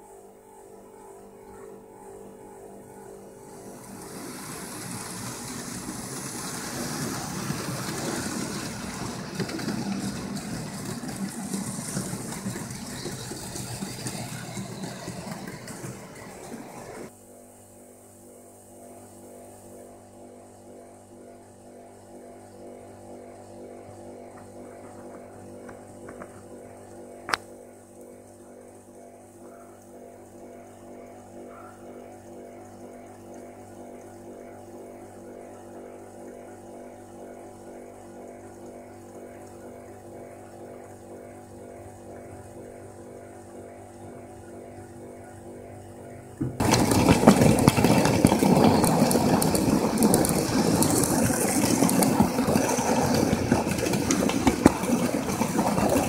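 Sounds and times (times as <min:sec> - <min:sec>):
electrical hum: 0:00.0 - 0:56.0
loud rushing rattling noise: 0:03.6 - 0:17.1, 0:46.6 - 0:56.0.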